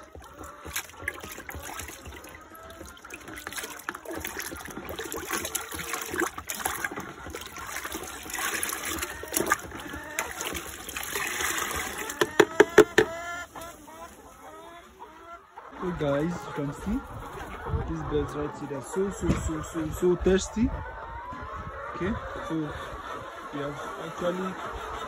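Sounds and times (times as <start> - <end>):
water poured with trickling splash: 0.0 - 12.4
water sloshing in plastic basin: 0.0 - 15.0.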